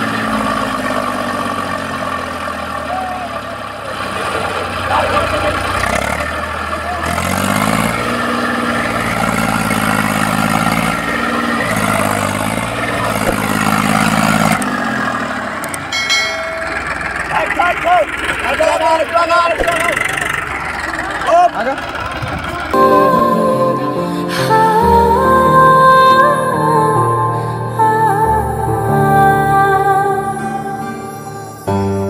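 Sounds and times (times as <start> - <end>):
tractor diesel engine revving: 0.0 - 25.4.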